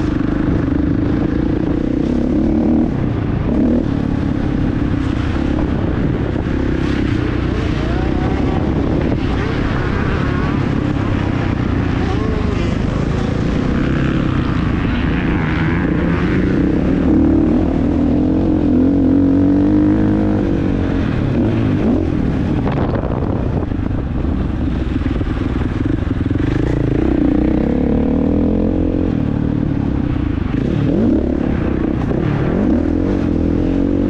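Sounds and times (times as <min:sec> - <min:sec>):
motocross engine revving: 0:00.0 - 0:23.1.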